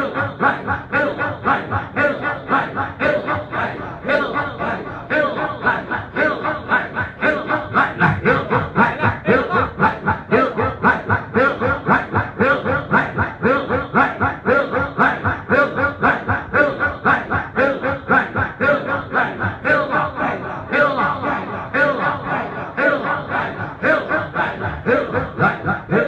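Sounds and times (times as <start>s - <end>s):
men chanting in unison: 0.0s - 26.0s.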